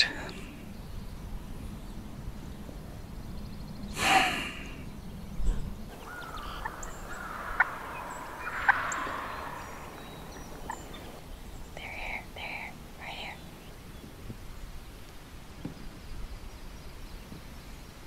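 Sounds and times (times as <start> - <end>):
drawn-out turkey call: 5.9 - 11.2
turkey gobbling: 5.9 - 11.3.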